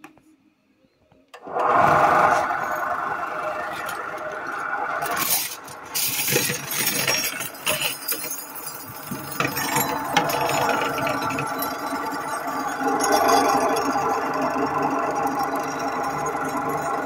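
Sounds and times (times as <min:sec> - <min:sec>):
polishing machine humming: 0:01.4 - 0:06.9, 0:08.8 - 0:17.0
cutlery clinking and rattling: 0:05.2 - 0:12.4.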